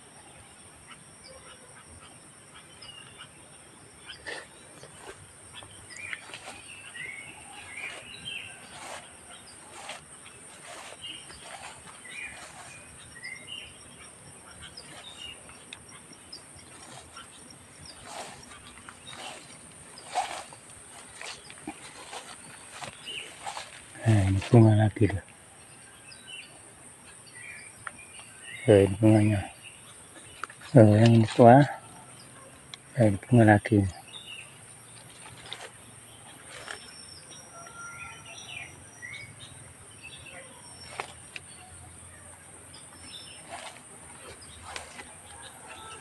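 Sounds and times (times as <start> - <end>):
birds chirping: 0.0 - 46.0
footsteps through undergrowth: 4.3 - 25.2, 34.9 - 37.0, 40.6 - 41.7, 42.9 - 46.0.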